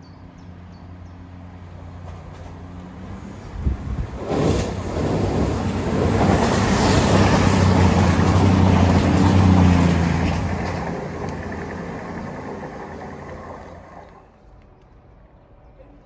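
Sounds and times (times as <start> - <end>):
diesel train engine drone: 0.0 - 15.6
train wheels rushing on rails: 2.0 - 14.3.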